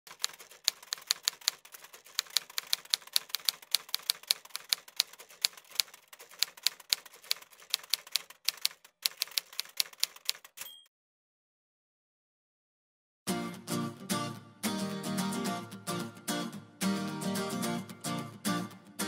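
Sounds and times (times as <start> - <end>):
typewriter keys striking: 0.1 - 10.8.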